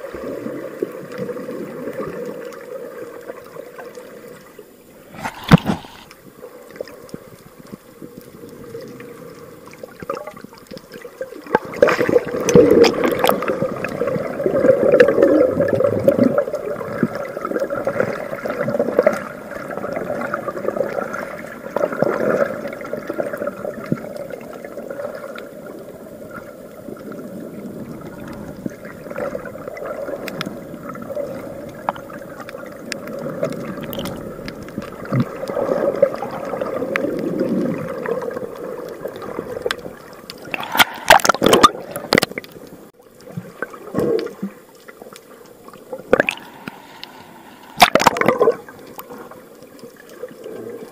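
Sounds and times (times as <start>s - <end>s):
underwater gurgling and sloshing: 0.0s - 50.9s
paddle splashing into water: 47.7s - 48.6s.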